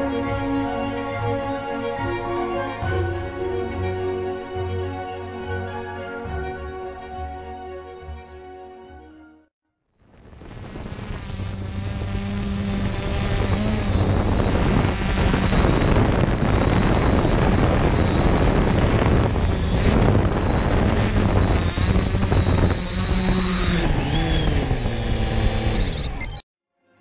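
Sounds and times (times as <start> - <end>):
drone propellers whining: 10.2 - 26.4.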